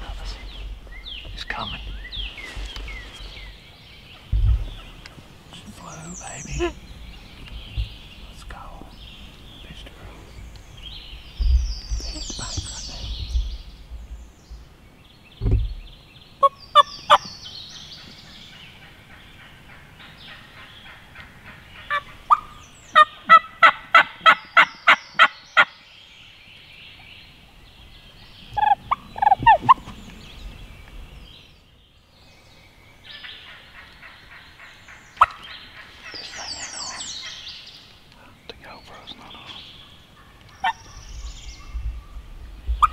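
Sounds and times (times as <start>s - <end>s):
turkey gobbling: 18.9s - 25.7s, 28.6s - 29.9s
hen turkey yelps: 21.9s - 25.7s, 28.6s - 29.7s.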